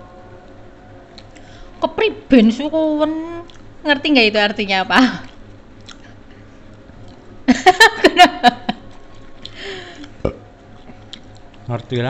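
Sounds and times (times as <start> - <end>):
faint eating sounds: 0.0 - 1.8, 3.0 - 7.5, 8.7 - 12.0.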